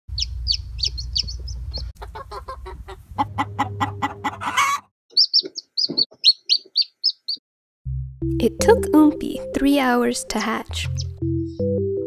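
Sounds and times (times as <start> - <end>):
chick peeping: 0.1 - 7.4
chicken squawk: 0.2 - 7.3
chicken clucking: 0.2 - 7.4.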